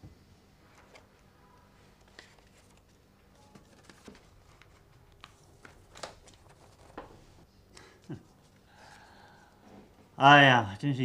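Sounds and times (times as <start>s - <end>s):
faint paper rustling and taps: 2.0s - 7.3s.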